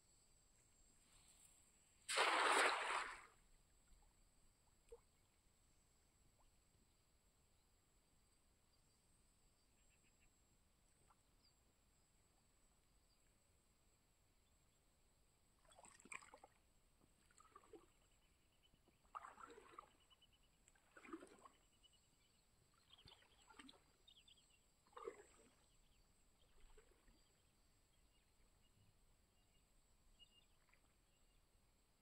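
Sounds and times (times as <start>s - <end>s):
faint water splashes and sloshing: 0.9s - 6.8s, 15.2s - 32.0s.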